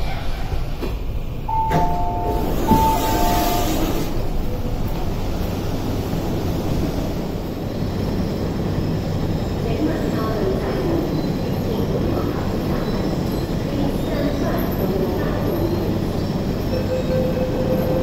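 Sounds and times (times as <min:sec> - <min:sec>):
train low hum: 0:00.0 - 0:18.0
platform ambience: 0:01.5 - 0:05.1.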